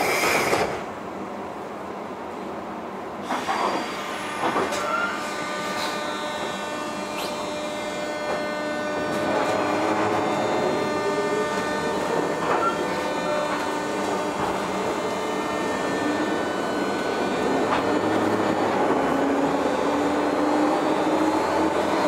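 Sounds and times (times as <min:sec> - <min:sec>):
electric train motor whine: 0:03.2 - 0:22.0
rail clicks: 0:08.2 - 0:22.0.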